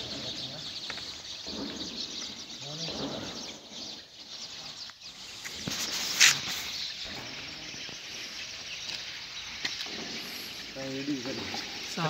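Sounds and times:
outdoor background hiss: 2.4 - 12.0
loud rustle: 5.3 - 7.6.

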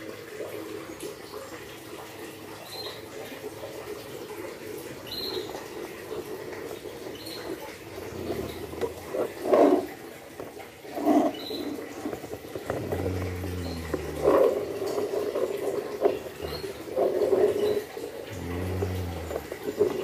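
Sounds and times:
toy wheels rolling on tiles: 4.9 - 20.0.

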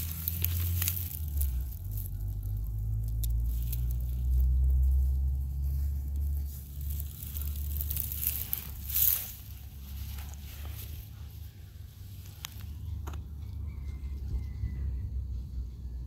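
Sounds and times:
vegetation rustling: 0.0 - 13.0
low rumble: 0.0 - 16.0.

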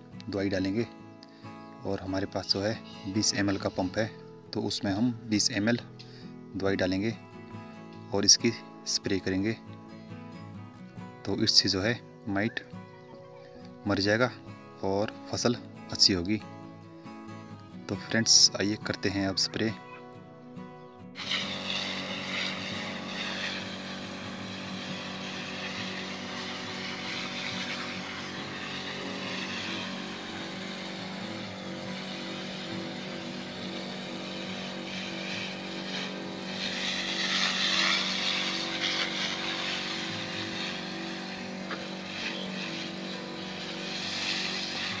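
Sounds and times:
spray hissing from nozzle: 21.2 - 45.0
sprayer pump running: 21.2 - 45.0.

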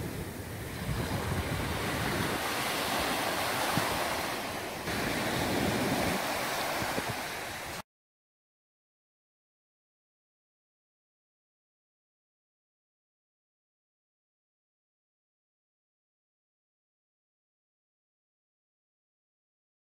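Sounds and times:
ocean surf washing onto beach: 0.0 - 7.8.

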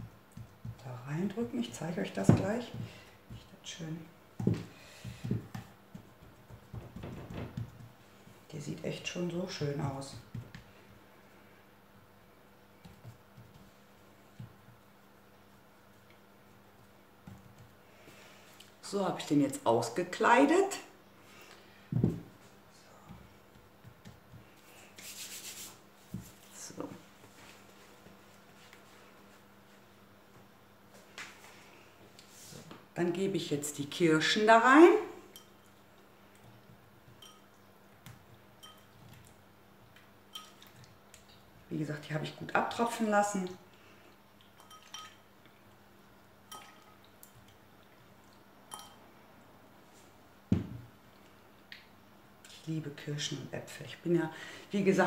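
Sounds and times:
hands rubbing: 24.4 - 26.4
glass bowl clinking: 37.1 - 37.6, 38.6 - 39.0, 40.3 - 40.8, 44.6 - 45.3, 46.5 - 47.6, 48.6 - 49.1.

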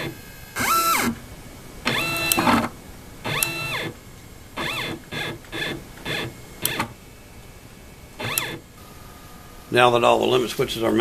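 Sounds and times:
stepper motor whine: 3.3 - 3.9, 8.1 - 9.9.

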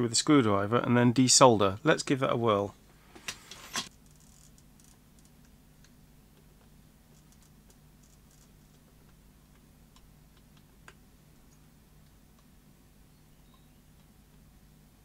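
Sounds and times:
low steady hum: 0.0 - 15.0
screwdriver scraping: 3.2 - 4.9.

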